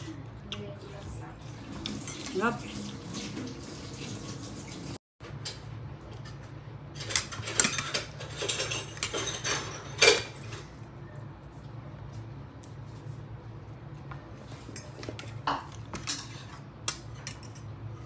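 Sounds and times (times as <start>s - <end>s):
utensils clinking on dishes: 7.0s - 10.8s, 14.7s - 18.0s.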